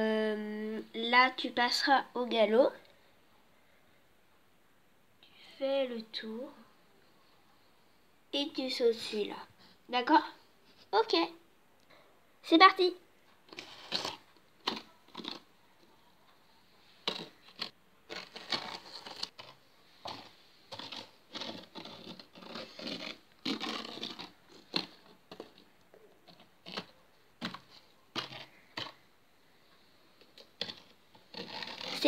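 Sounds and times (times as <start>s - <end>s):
plastic toy scraping on sand: 17.1s - 25.0s, 30.6s - 32.0s.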